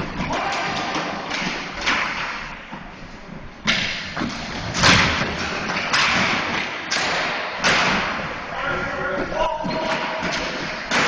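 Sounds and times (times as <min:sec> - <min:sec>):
hockey sticks knocking ball: 0:00.0 - 0:02.9, 0:03.6 - 0:08.4, 0:09.2 - 0:11.0.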